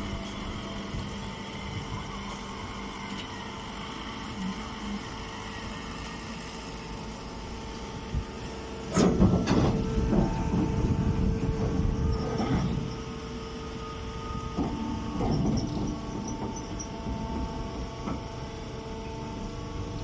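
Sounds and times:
hydraulic power unit humming: 0.0s - 20.0s
knocks and scraping clatter: 8.9s - 13.1s, 14.5s - 18.3s.

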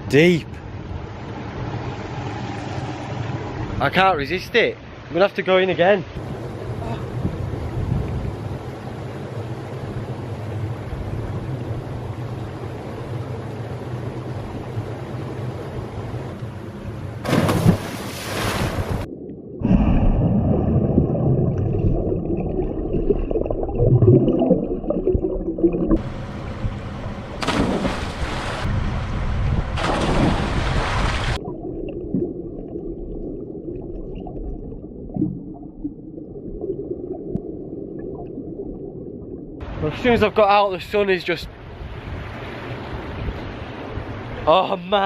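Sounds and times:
water splashing: 17.2s - 26.1s, 27.2s - 39.8s.

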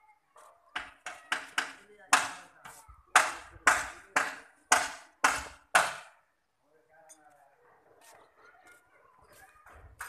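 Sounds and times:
hammer striking masonry: 0.7s - 6.2s.

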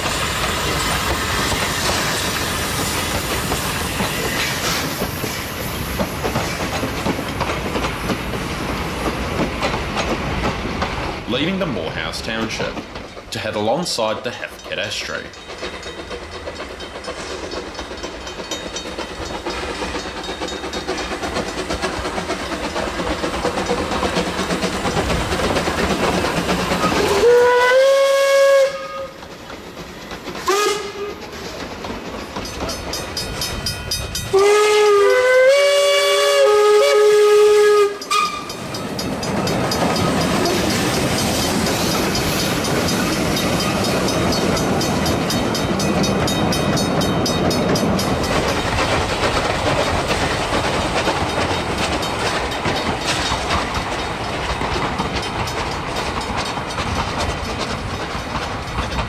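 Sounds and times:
carriages rumbling on rails: 0.0s - 59.0s
steam locomotives running: 0.0s - 59.0s
steam whistle blasts: 27.0s - 29.2s, 30.5s - 31.2s, 34.3s - 38.6s.

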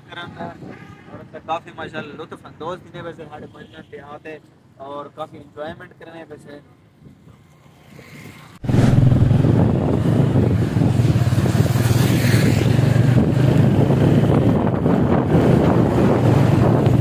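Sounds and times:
motorcycle passing: 8.0s - 14.6s
wind buffeting microphone: 8.6s - 17.0s.

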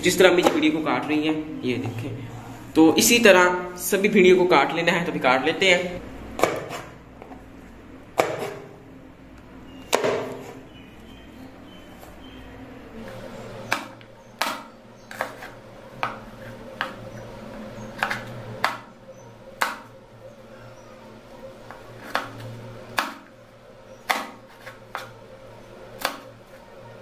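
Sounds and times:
steady low hum: 0.0s - 27.0s
knife chopping on wooden board: 6.4s - 6.9s, 8.2s - 8.7s, 9.9s - 10.6s, 13.6s - 17.0s, 18.0s - 18.9s, 19.6s - 19.9s, 21.6s - 23.3s, 24.0s - 25.1s, 26.0s - 26.3s.

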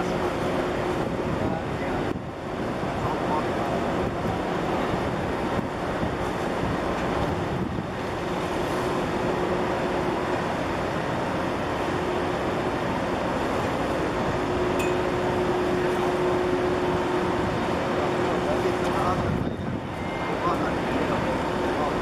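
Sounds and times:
ship engine rumble and hum: 0.0s - 22.0s
water: 0.0s - 22.0s
wind noise on microphone: 0.8s - 3.2s, 3.8s - 8.7s, 19.0s - 20.2s.

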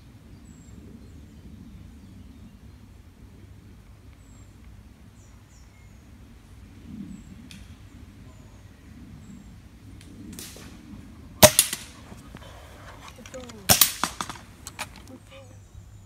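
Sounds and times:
air rifle shot: 11.4s - 12.3s, 13.6s - 14.6s.

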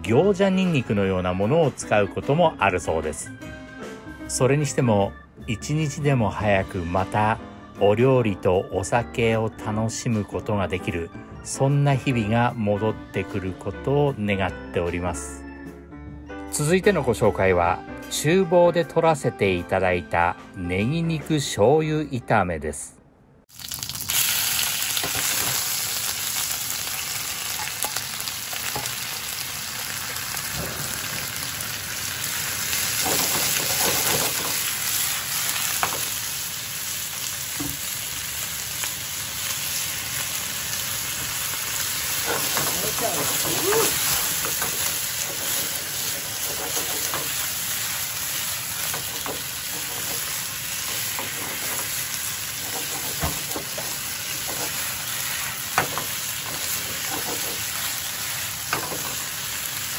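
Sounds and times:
meat and onions sizzling: 23.5s - 59.9s
utensils scraping a pan: 42.2s - 47.5s, 48.9s - 51.9s, 52.5s - 54.9s, 56.6s - 57.8s.

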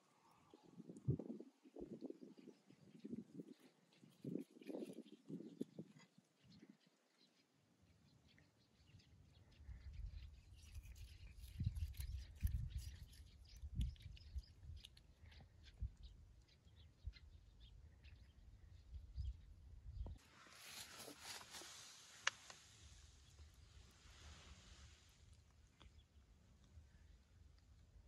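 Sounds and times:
cat chewing grass: 3.5s - 6.1s, 9.9s - 16.3s.

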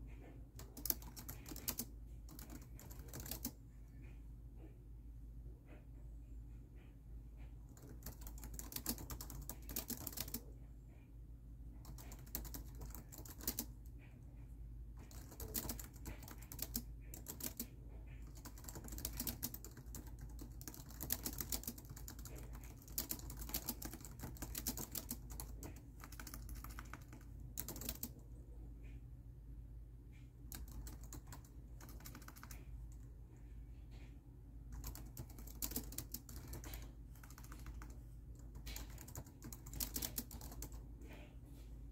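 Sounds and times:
low steady hum: 0.0s - 41.9s
laptop keyboard typing: 0.5s - 3.6s, 7.4s - 10.6s, 11.8s - 14.2s, 15.0s - 28.2s, 30.5s - 33.0s, 34.7s - 40.8s.

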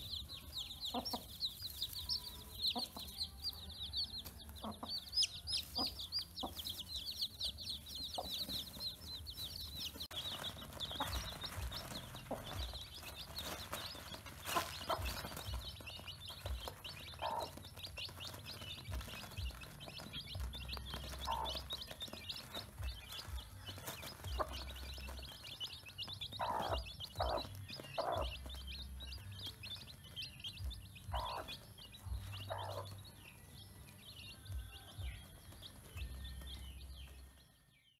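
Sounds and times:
hen clucking: 0.0s - 3.5s, 4.2s - 9.4s, 10.0s - 28.5s, 31.0s - 33.0s
chicks peeping: 0.0s - 37.9s.

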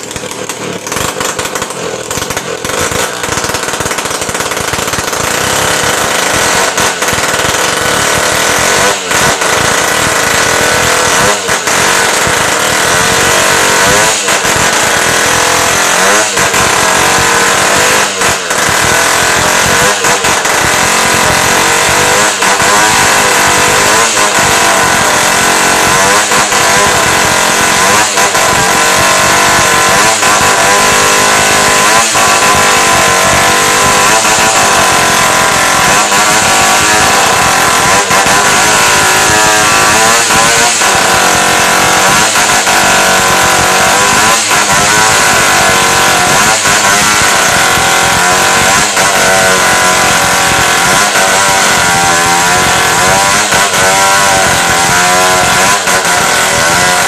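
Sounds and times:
chainsaw cutting into log: 0.0s - 57.0s.

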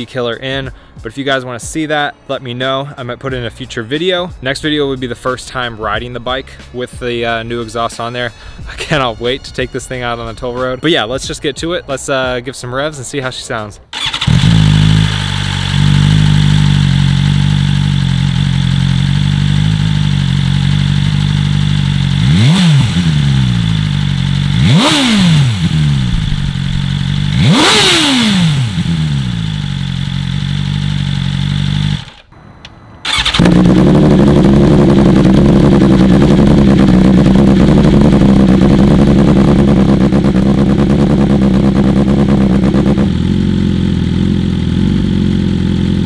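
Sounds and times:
motorcycle engine idling: 13.9s - 32.3s, 33.0s - 46.0s
motorcycle engine revving: 13.9s - 32.3s, 33.0s - 46.0s.

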